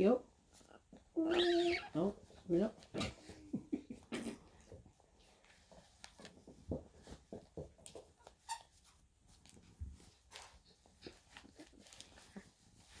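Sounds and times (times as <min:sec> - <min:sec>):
parrot squeaks and grunts: 0:01.1 - 0:02.1, 0:08.2 - 0:08.9
rustle of feathers and clothing: 0:04.7 - 0:13.0.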